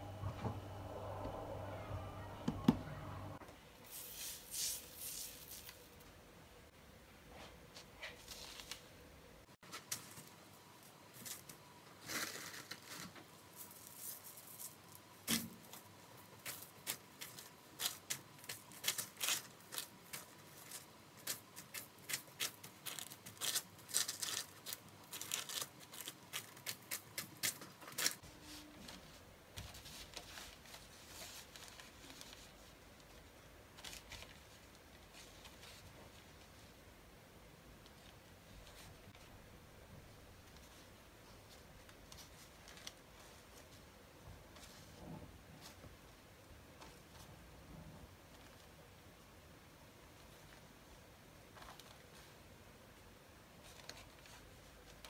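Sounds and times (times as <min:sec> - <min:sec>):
baking paper crinkling: 0:03.8 - 0:06.1, 0:07.7 - 0:09.0, 0:09.6 - 0:36.8, 0:40.4 - 0:43.9.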